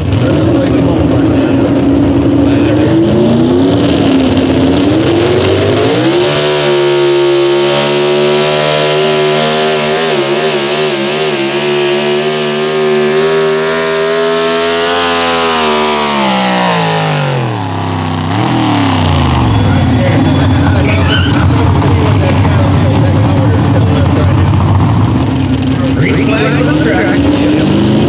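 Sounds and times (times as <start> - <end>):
truck engine at high revs: 0.0 - 28.0.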